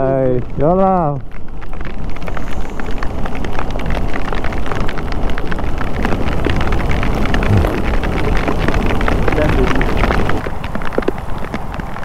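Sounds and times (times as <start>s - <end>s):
rain drops ticking on helmet: 0.0s - 12.0s
wind rumble: 0.0s - 12.0s
motorcycle engine rumble: 7.1s - 8.8s.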